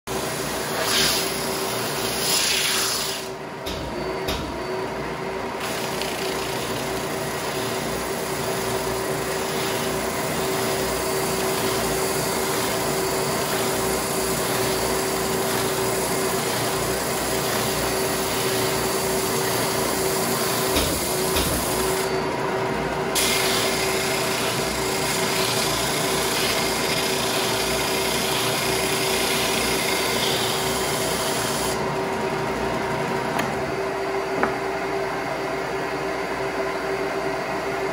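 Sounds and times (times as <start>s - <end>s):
dust extraction vacuum: 0.1s - 37.9s
belt sander sanding wood: 5.6s - 22.2s, 23.2s - 31.8s.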